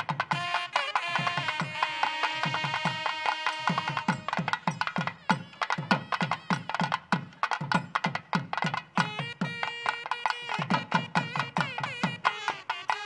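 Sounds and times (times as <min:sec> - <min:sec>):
hand drum strokes: 0:00.0 - 0:13.0.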